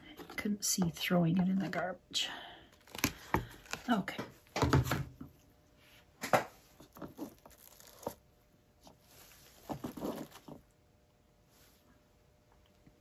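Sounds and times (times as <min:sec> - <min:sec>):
crinkling rustles: 0:06.8 - 0:08.2.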